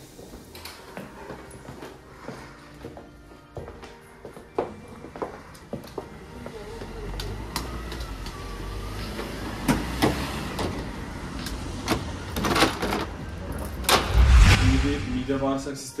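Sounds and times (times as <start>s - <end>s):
street traffic rumble: 5.8s - 15.5s.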